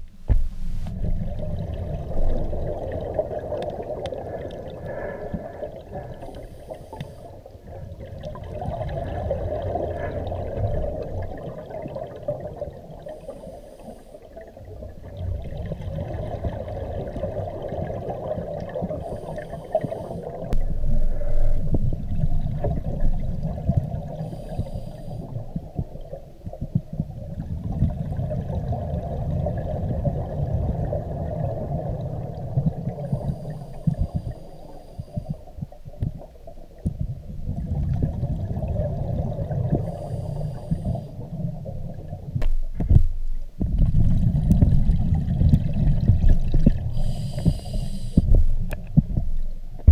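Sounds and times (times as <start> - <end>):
bubbly exhaled air underwater: 0.0 - 49.9
hissing regulator inhalations: 6.2 - 7.4, 13.1 - 14.3, 19.0 - 20.5, 24.2 - 25.3, 33.0 - 35.5, 39.8 - 41.2, 47.0 - 48.4.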